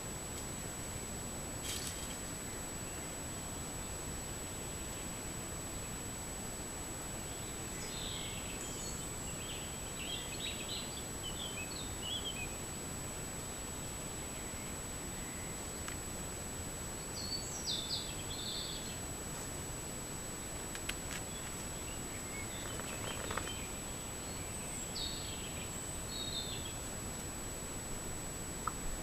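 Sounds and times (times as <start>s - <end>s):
high constant whine: 0.0s - 29.0s
microphone hiss: 0.0s - 29.0s
small birds chirping: 7.2s - 12.7s, 16.9s - 19.1s, 20.4s - 26.9s.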